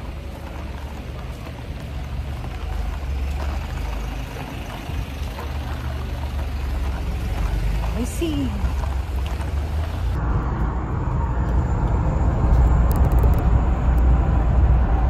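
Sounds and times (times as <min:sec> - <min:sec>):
faint street noise: 0:00.0 - 0:15.0
wind buffeting microphone: 0:08.6 - 0:15.0.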